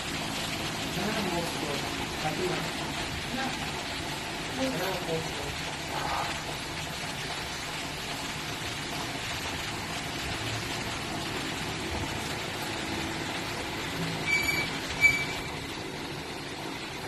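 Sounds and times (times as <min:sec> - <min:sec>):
background rumble and hiss: 0:00.0 - 0:17.0
short high-pitched pings: 0:14.2 - 0:15.4.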